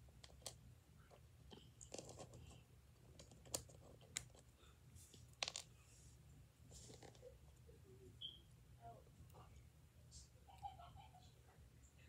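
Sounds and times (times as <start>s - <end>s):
small items clicking and crinkling: 5.3s - 5.7s.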